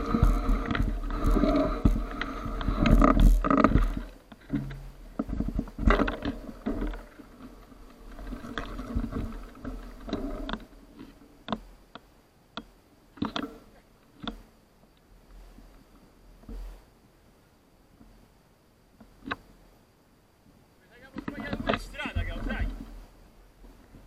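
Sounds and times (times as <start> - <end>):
bike rattling: 0.0 - 11.4, 21.0 - 22.9
sharp crackles and knocks: 0.0 - 16.9, 19.0 - 19.6, 21.0 - 24.0.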